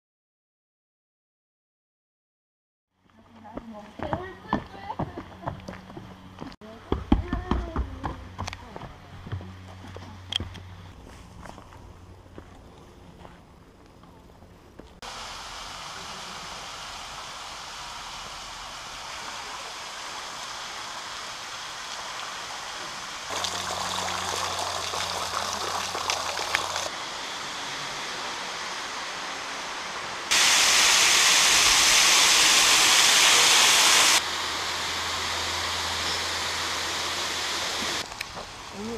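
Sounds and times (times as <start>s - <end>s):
waterfall rushing: 15.1s - 38.0s.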